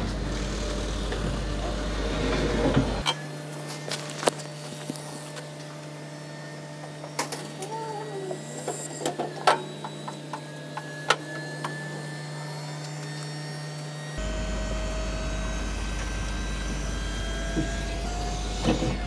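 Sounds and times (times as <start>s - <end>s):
steady low hum: 12.2s - 19.0s.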